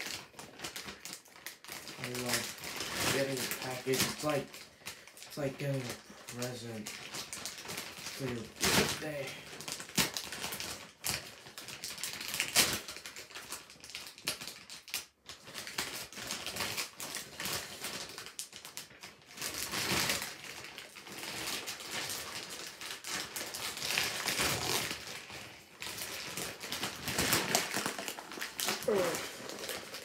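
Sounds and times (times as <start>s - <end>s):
plastic mailer bag crinkling: 0.0s - 30.0s.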